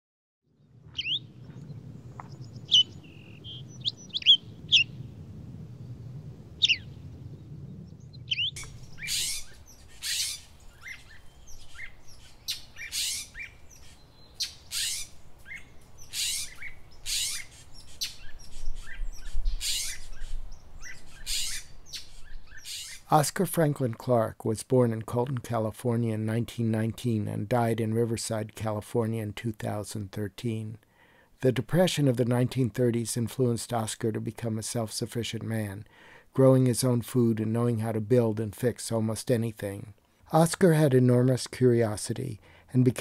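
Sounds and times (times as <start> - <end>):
birds chirping and whistling: 0.9 - 5.1, 6.6 - 23.0.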